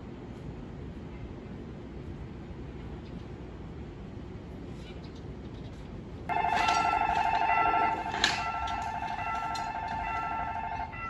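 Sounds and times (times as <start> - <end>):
electronic bell ringing: 6.3 - 11.0.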